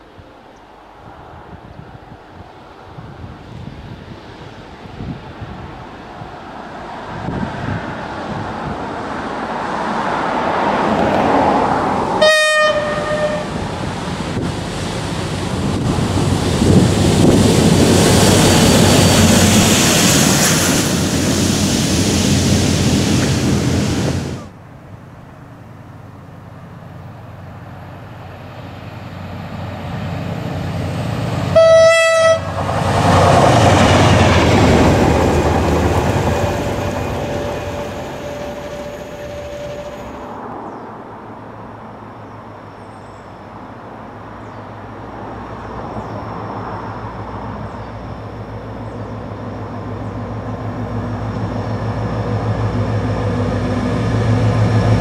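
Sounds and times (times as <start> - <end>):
locomotive engine and wheels passing: 0.0 - 55.0
locomotive horn blast: 12.1 - 13.6, 31.5 - 32.7, 36.0 - 40.5.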